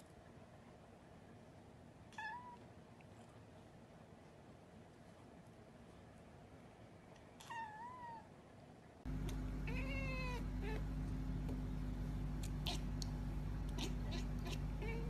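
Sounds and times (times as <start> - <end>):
cat meowing: 2.1 - 2.6, 7.4 - 8.3, 9.6 - 10.9, 12.4 - 13.0, 13.6 - 15.0
steady low hum: 9.0 - 15.0
faint clicks: 12.4 - 13.8.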